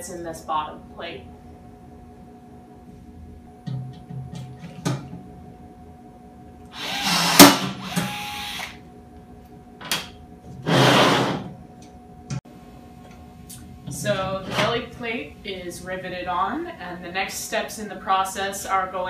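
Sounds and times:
power rivet tool whining: 6.7s - 8.8s.

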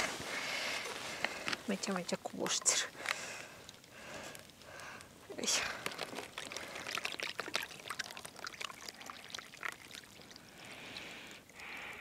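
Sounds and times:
rice poured into water: 5.4s - 11.6s.

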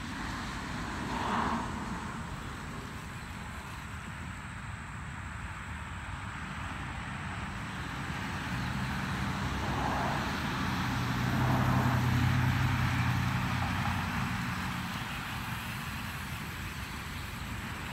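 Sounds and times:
vehicle motor humming: 6.9s - 17.9s.

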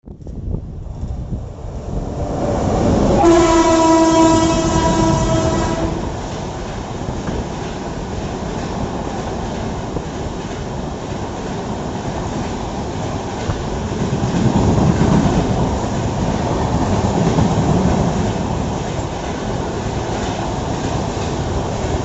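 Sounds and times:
train wheels clattering: 3.0s - 22.0s
train horn blast: 3.1s - 6.2s.

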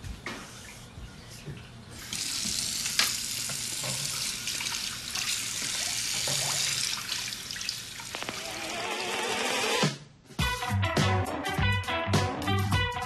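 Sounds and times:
water running from a tap: 2.0s - 9.7s.

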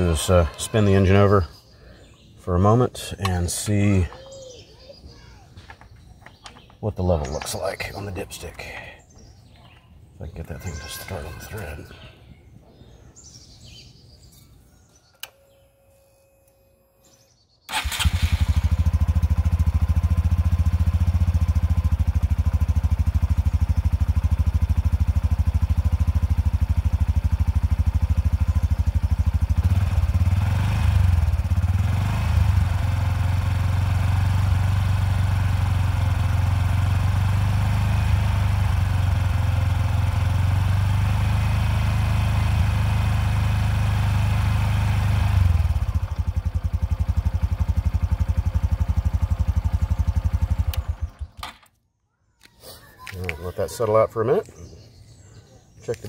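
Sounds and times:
motorcycle engine idling: 17.7s - 51.4s.

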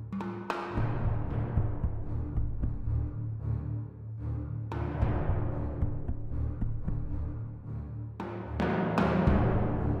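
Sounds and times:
background music with low notes: 0.0s - 10.0s.

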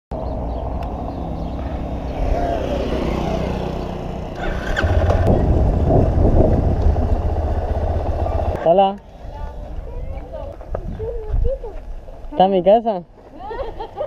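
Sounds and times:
motorcycle engine riding: 0.2s - 8.7s.

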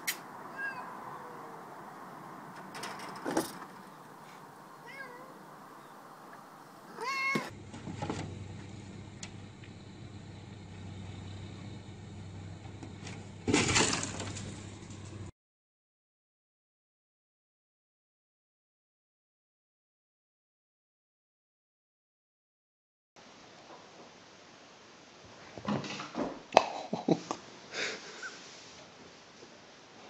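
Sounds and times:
cat meowing: 0.5s - 1.6s, 4.8s - 5.4s, 6.9s - 7.5s
loud thump and scrape: 2.7s - 3.8s, 7.3s - 8.4s, 12.8s - 15.0s.

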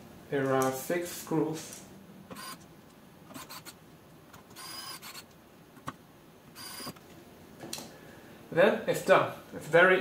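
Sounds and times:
electric screwdriver whirring: 2.4s - 2.6s, 4.5s - 5.3s, 6.6s - 7.0s.

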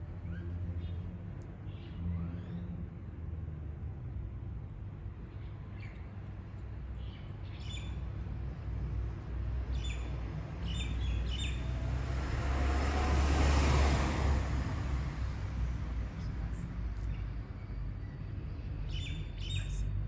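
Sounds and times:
traffic rumble: 0.0s - 20.0s
small birds chirping: 0.2s - 2.8s, 5.3s - 8.6s, 9.6s - 11.8s, 16.2s - 20.0s
vehicle passing: 8.2s - 20.0s.

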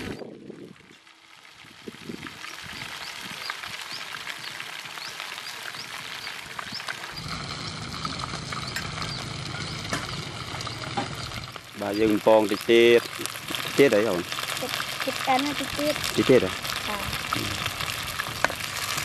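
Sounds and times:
frying food crackling: 0.0s - 19.0s
low hum: 7.1s - 11.6s.

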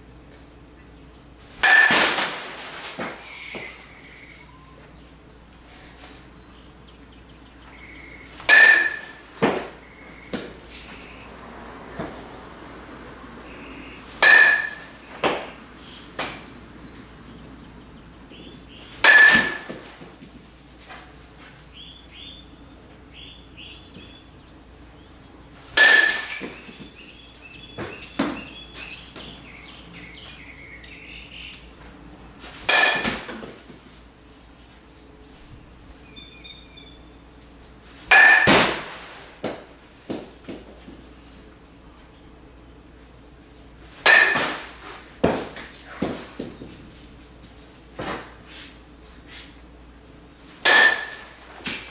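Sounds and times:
metal bat hitting ball: 1.6s - 3.7s, 8.4s - 11.1s, 14.2s - 15.6s, 16.2s - 16.5s, 19.0s - 20.1s, 25.7s - 27.0s, 32.6s - 33.6s, 38.1s - 40.6s, 44.0s - 46.5s, 50.6s - 51.9s.

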